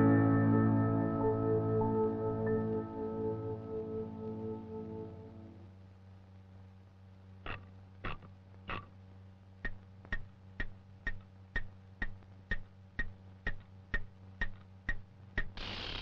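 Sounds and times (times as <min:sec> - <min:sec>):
low steady hum: 0:00.0 - 0:16.0
metronome ticking: 0:09.6 - 0:15.6.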